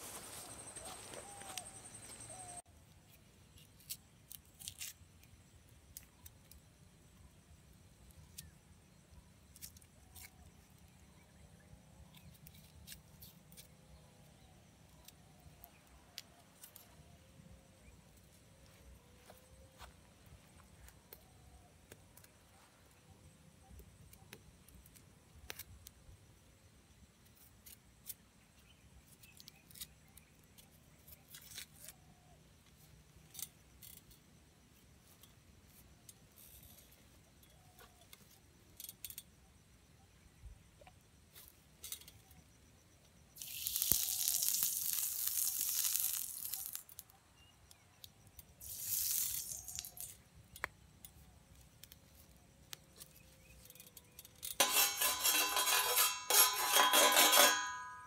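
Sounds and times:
knife peeling onion skin: 3.5s - 5.0s, 43.4s - 47.1s, 48.6s - 50.2s
hiss: 48.6s - 50.0s.

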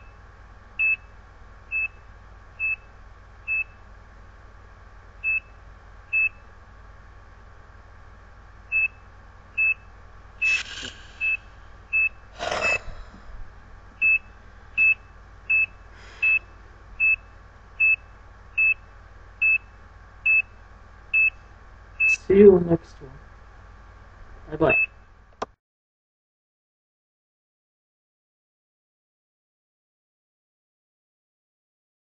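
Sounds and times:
patient monitor beeps: 1.7s - 2.0s, 2.6s - 2.9s, 3.5s - 3.8s, 5.2s - 6.4s, 8.7s - 13.2s, 14.0s - 22.3s, 24.6s - 25.0s.

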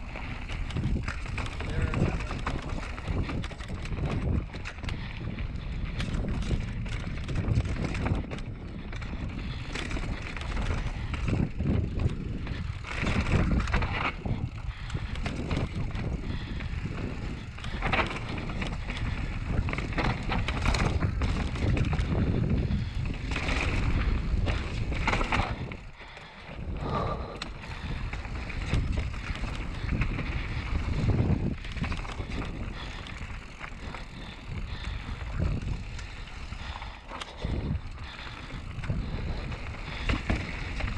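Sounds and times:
tyre noise on dirt: 0.0s - 25.8s
wind on the microphone: 0.0s - 25.9s, 26.5s - 40.9s
bike rattling over bumps: 0.0s - 40.9s.

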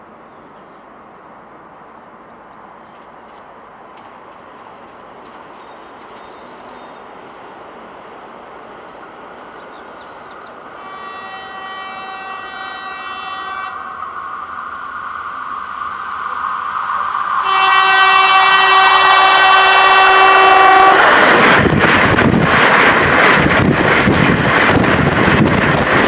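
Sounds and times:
electric train running noise: 10.3s - 26.0s
train horn: 10.8s - 14.0s, 17.4s - 21.3s.

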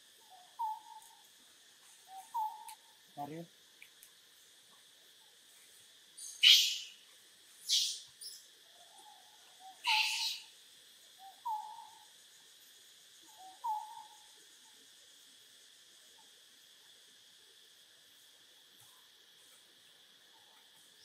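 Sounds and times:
high insect drone: 0.0s - 21.0s
short tonal animal calls: 9.8s - 10.5s.

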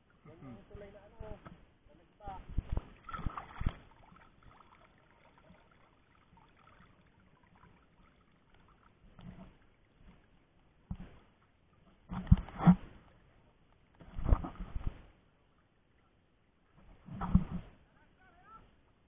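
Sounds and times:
water splashing: 2.5s - 11.3s
dripping and sloshing water: 2.6s - 12.5s.

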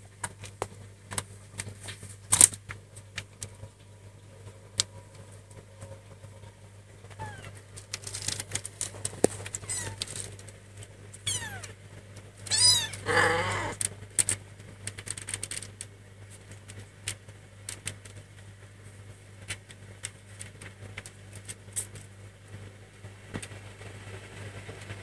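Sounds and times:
kittens feeding clicks and rustles: 0.0s - 13.0s, 13.7s - 25.0s
cat meowing: 7.1s - 7.6s, 9.6s - 10.1s, 11.2s - 11.7s, 12.4s - 13.8s.

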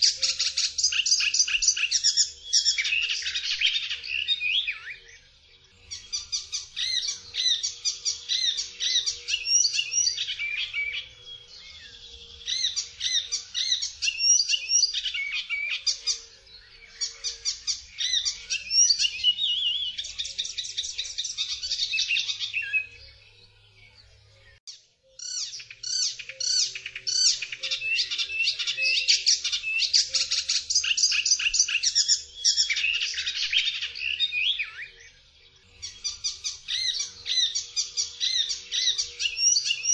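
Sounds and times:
warbler singing: 0.0s - 39.9s.

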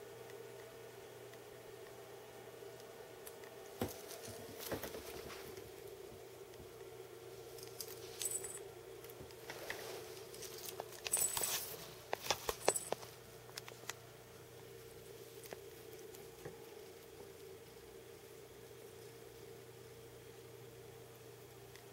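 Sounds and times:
faint steady hum: 0.0s - 21.9s
metal collar tag clinking: 7.6s - 8.6s, 10.4s - 11.7s, 12.5s - 13.0s.

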